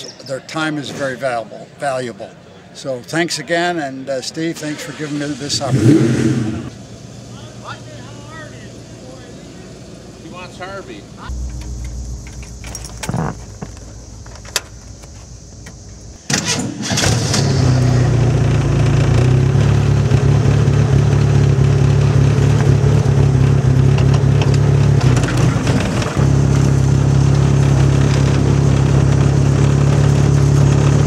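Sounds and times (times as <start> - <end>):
car engine starting and running: 4.7 - 7.4, 11.2 - 31.0.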